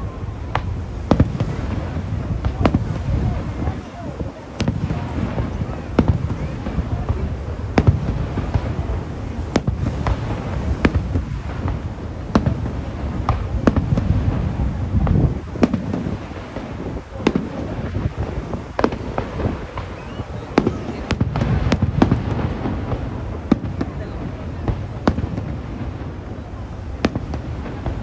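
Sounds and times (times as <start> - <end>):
fireworks bangs: 0.0 - 28.0.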